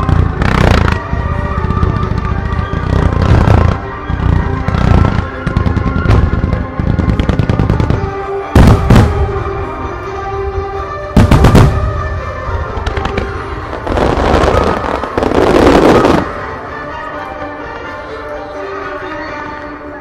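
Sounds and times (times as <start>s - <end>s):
fireworks crackling: 0.0s - 9.4s, 11.2s - 16.5s
loud fireworks booms: 0.0s - 9.6s, 11.2s - 16.4s
music playing: 0.0s - 20.0s.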